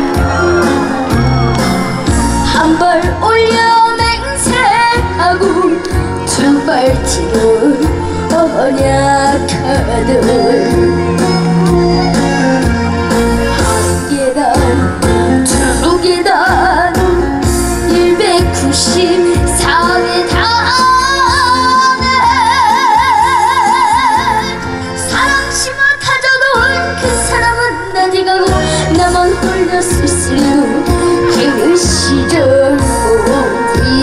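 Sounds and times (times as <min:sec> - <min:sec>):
backing music with bass and beat: 0:00.0 - 0:24.8
person singing: 0:02.5 - 0:17.1.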